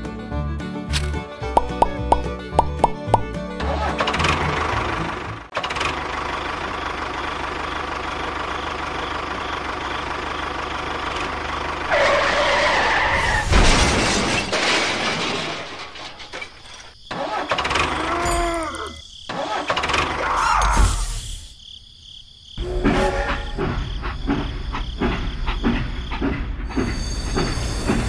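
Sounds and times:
engine running: 2.0s - 12.2s.

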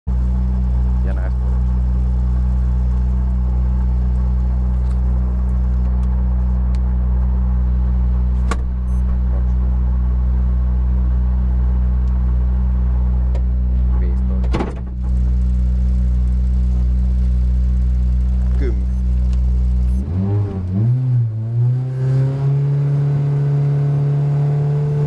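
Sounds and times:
car engine idling: 0.1s - 20.8s
sharp click: 8.4s - 9.2s.

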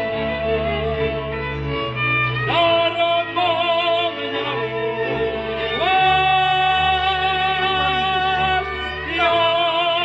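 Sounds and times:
instrumental accompaniment: 0.0s - 10.0s
man singing: 2.4s - 10.0s.

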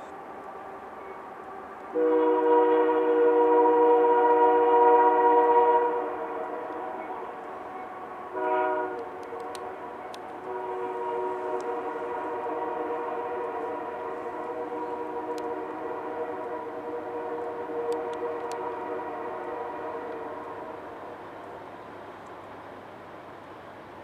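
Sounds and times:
locomotive air horn blasts: 1.8s - 21.3s
sharp clicks: 9.0s - 10.4s.

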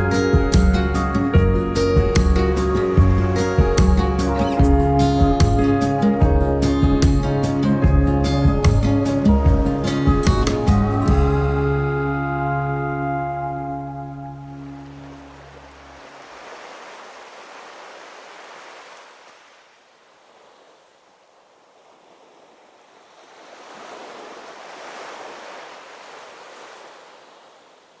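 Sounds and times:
ocean waves washing in: 13.6s - 28.0s.

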